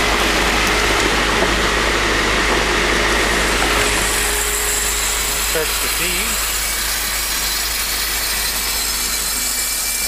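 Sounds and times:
centrifuge motor humming: 0.0 - 10.0.

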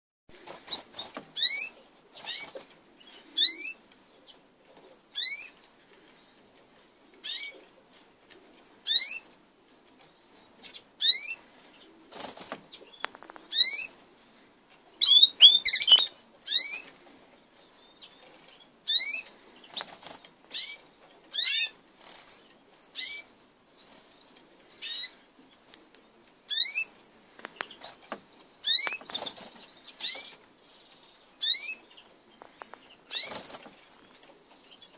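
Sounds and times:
wings fluttering: 0.3 - 1.6, 11.5 - 13.8, 19.6 - 20.6, 22.0 - 22.4, 27.3 - 30.4, 32.4 - 34.9
finches whistling calls: 15.0 - 16.9, 28.6 - 29.4, 31.4 - 31.8, 33.1 - 34.1.

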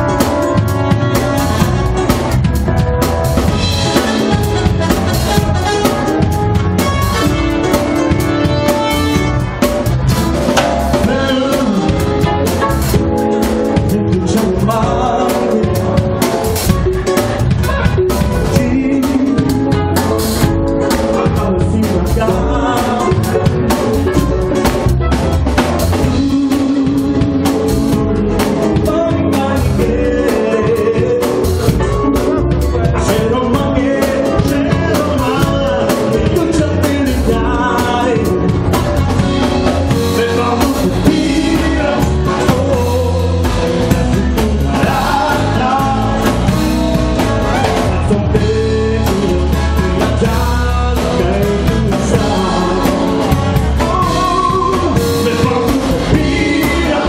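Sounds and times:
acoustic guitar: 0.0 - 57.0
drum kit: 0.0 - 57.0
electronic keyboard: 0.0 - 57.0
person singing: 10.4 - 24.9, 25.9 - 57.0.

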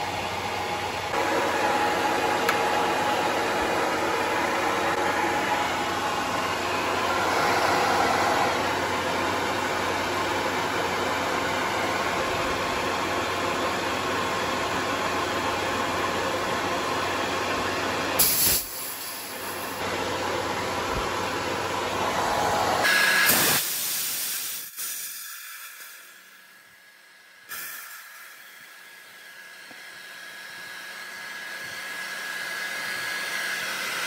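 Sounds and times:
air compressor running: 0.0 - 34.0
sharp hiss of air: 18.2 - 19.5, 22.6 - 26.5, 27.5 - 28.9
air hissing from release valve: 18.2 - 19.6, 22.8 - 26.7, 27.5 - 29.2.

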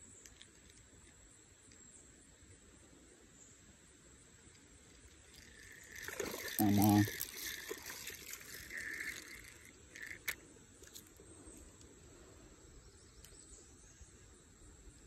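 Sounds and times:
faint insect hum: 0.0 - 15.0
fishing reel handling noise: 4.4 - 11.9.

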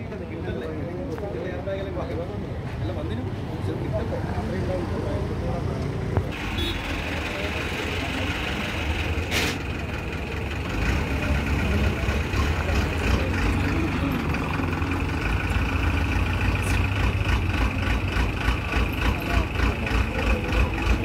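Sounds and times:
vehicle engine running: 6.4 - 21.0.

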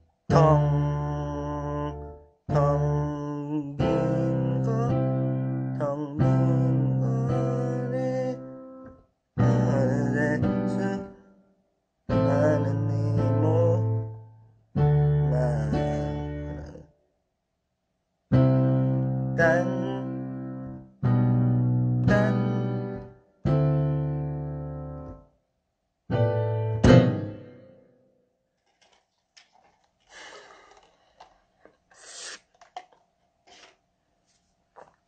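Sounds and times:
keyboard piano chords: 0.3 - 11.2, 12.1 - 14.2, 14.8 - 16.8, 18.3 - 25.3, 26.1 - 27.8.

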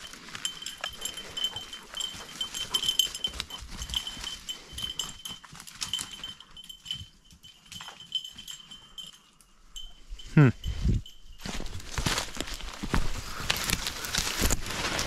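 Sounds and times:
footsteps through brush and dry leaves: 0.0 - 7.0, 11.0 - 15.0
dog collar bell jingling: 0.0 - 12.7.

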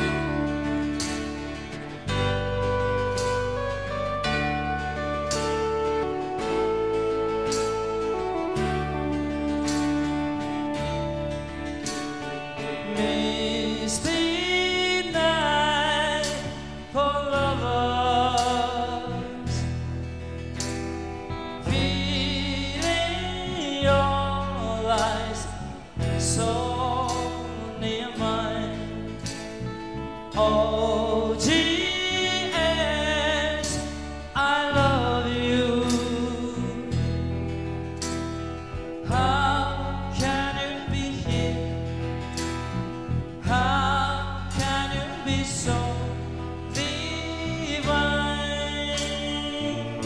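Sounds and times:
man singing into microphone: 0.0 - 0.8, 12.1 - 19.9, 21.3 - 37.6, 38.6 - 50.0
rock band playing: 0.0 - 15.4, 16.2 - 24.0, 24.9 - 40.5, 41.2 - 50.0.

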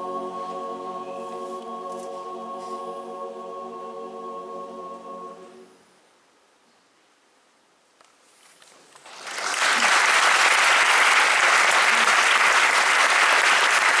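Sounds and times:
audience applause: 9.0 - 14.0.

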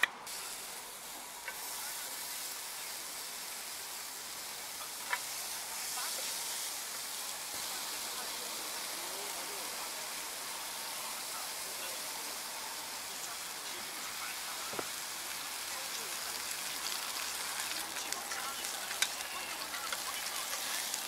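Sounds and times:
onions sizzling on a grill pan: 0.3 - 21.0
chopsticks clicking against pan: 17.7 - 20.7.

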